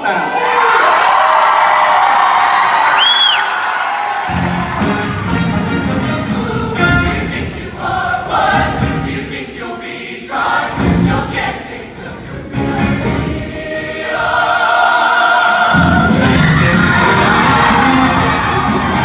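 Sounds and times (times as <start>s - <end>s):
choir singing in harmony: 4.3s - 19.0s.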